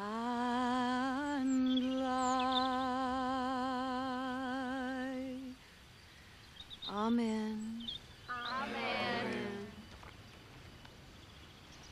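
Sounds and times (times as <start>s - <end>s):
woman singing a held note: 8.3s - 9.8s.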